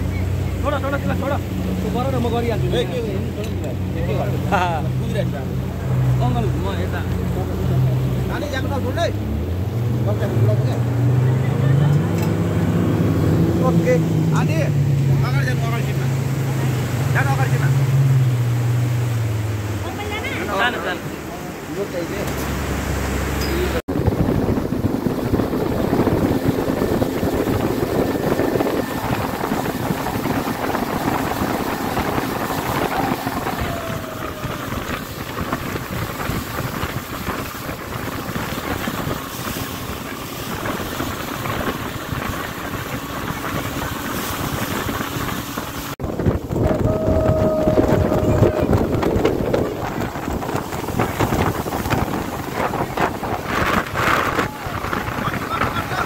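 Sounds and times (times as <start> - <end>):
outboard motor running: 0.0 - 56.0
water rushing past hull: 0.0 - 56.0
wind buffeting microphone: 23.9 - 56.0.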